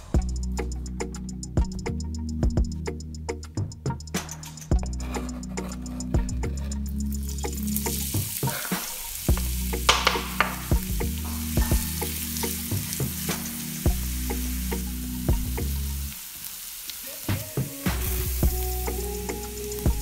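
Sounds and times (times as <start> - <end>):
onion sizzling in hot oil: 5.9 - 20.0.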